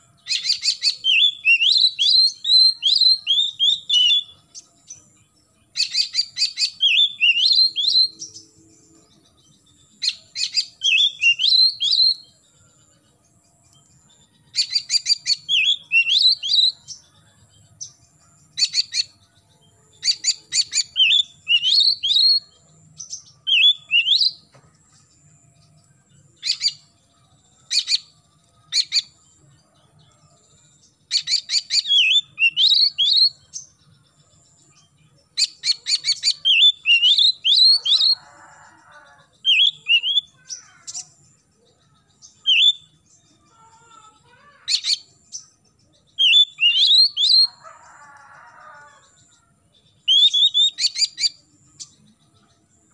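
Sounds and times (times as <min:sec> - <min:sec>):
bird singing: 0:00.0 - 0:52.9.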